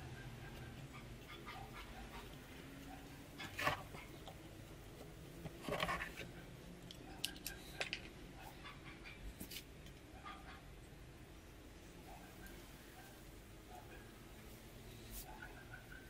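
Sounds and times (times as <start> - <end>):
scraping rustles: 5.4 - 6.3.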